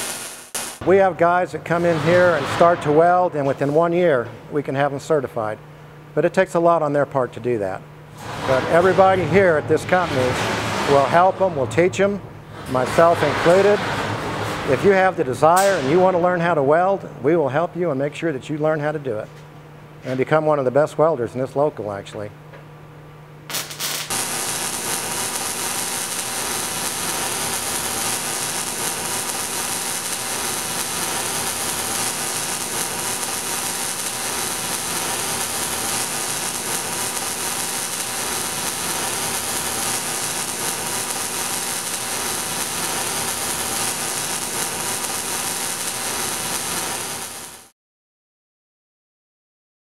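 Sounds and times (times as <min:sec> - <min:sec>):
welding arc crackling and sizzling: 0:00.0 - 0:04.0, 0:08.1 - 0:16.1, 0:23.5 - 0:47.7.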